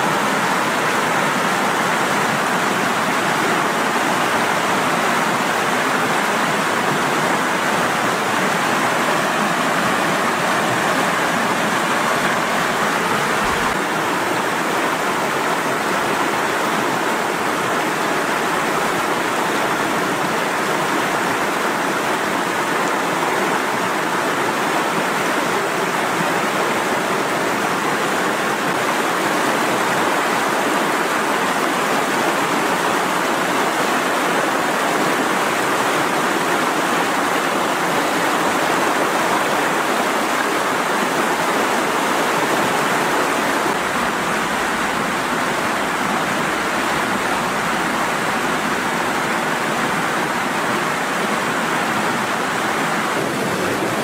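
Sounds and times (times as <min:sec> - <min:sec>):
river rushing through rapids: 0:00.0 - 0:54.0.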